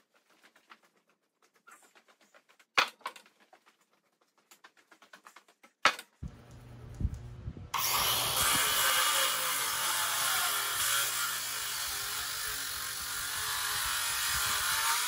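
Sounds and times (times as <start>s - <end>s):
circular saw cutting wood: 7.8s - 15.0s.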